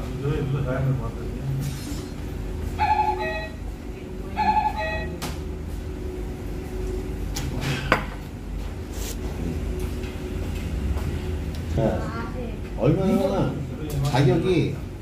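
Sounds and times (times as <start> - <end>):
faint background music: 0.0 - 15.0
steady low hum: 0.0 - 15.0.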